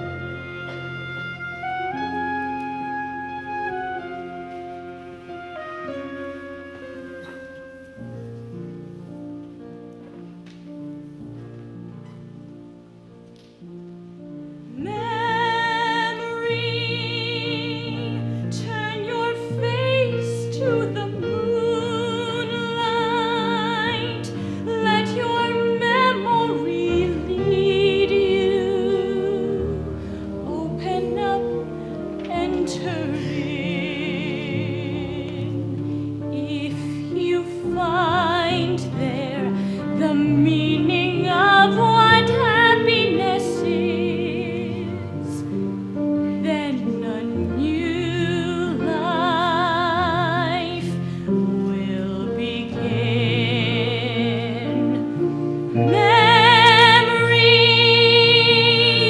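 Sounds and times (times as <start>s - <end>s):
instrumental accompaniment: 0.0s - 59.0s
woman singing with vibrato: 14.7s - 45.6s, 46.4s - 59.0s.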